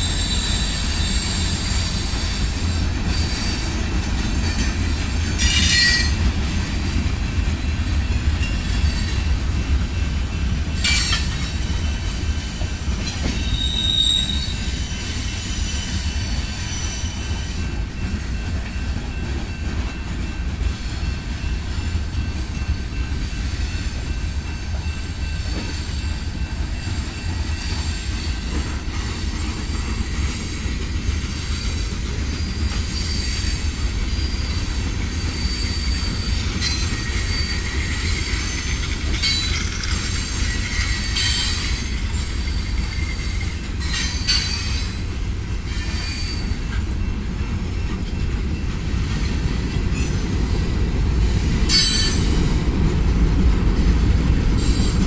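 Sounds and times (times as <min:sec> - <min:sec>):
high-pitched wheel squeal: 0:00.0 - 0:02.4, 0:13.4 - 0:16.0, 0:32.4 - 0:45.0, 0:45.7 - 0:46.7
train wheels rumbling on rail: 0:00.0 - 0:55.0.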